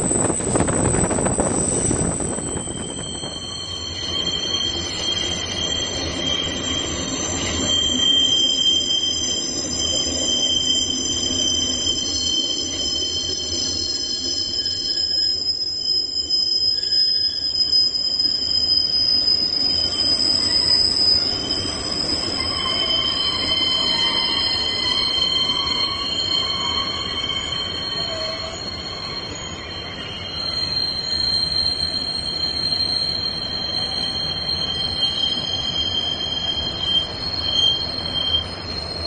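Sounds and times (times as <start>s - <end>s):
wheels rumbling on rails: 0.0s - 6.2s
train wheels squealing: 0.0s - 39.0s.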